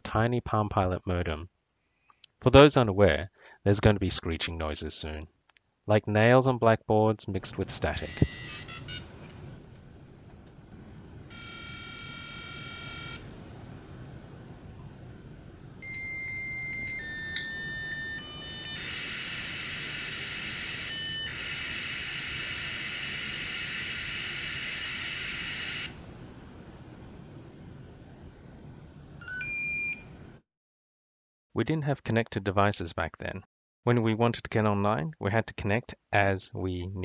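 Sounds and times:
modem static hiss: 7.4s - 29.2s
high modem tones changing pitch: 7.8s - 9.3s, 11.3s - 13.3s, 15.8s - 26.0s, 29.2s - 30.2s
dialing tones: 7.9s - 9.2s, 11.3s - 13.3s, 15.8s - 26.0s, 29.2s - 30.1s.

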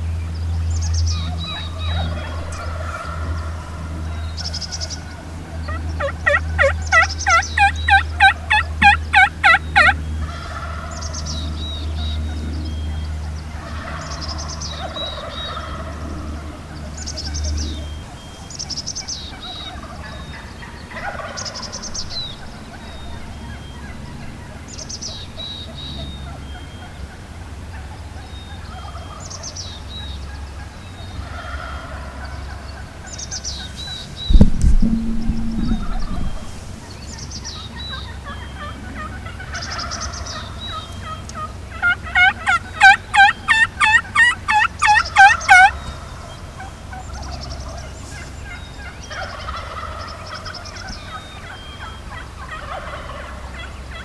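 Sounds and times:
turkey yelping: 1.2s - 3.7s, 5.6s - 10.9s, 13.6s - 16.5s, 19.3s - 24.6s, 31.2s - 32.8s, 38.3s - 46.1s, 48.4s - 54.0s
low steady hum: 31.9s - 42.8s.

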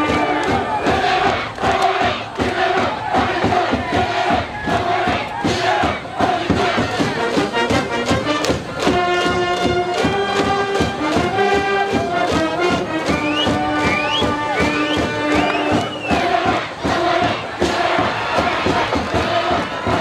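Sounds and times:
crowd chanting and shouting: 0.0s - 20.0s
steady drum beat: 0.0s - 20.0s
brass long held notes: 6.3s - 16.6s.

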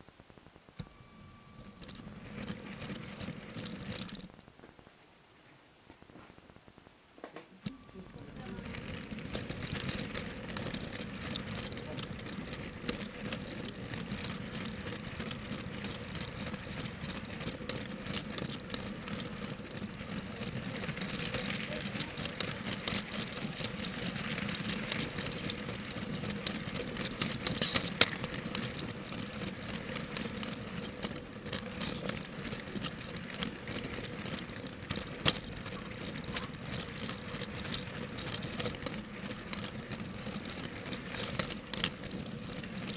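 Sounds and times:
toy train wheels rattling on track: 0.8s - 4.3s, 7.6s - 42.9s
faint train motor hum: 7.3s - 42.9s.

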